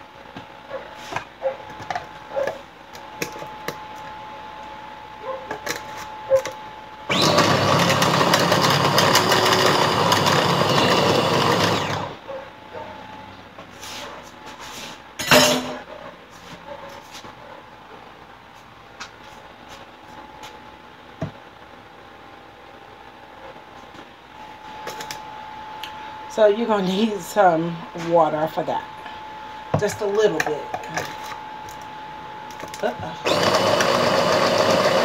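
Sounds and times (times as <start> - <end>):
electric food chopper running: 7.1 - 12.2, 32.5 - 35.0.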